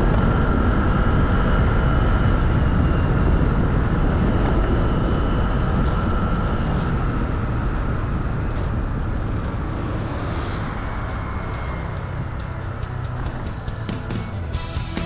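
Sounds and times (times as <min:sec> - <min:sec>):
wind rumble on microphone: 0:00.0 - 0:14.8
faint steady whine: 0:00.0 - 0:15.0
motorcycle engine running: 0:00.0 - 0:15.0.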